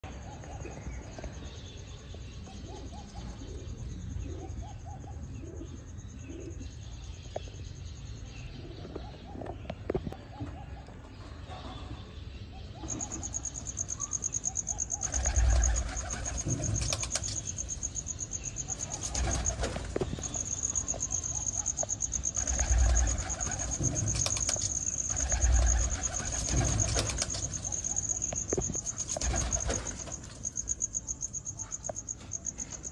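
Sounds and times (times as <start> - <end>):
cricket chirping: 0.0 - 9.1, 12.6 - 32.9
pigeons cooing: 2.4 - 6.6, 12.6 - 17.5, 18.7 - 30.2.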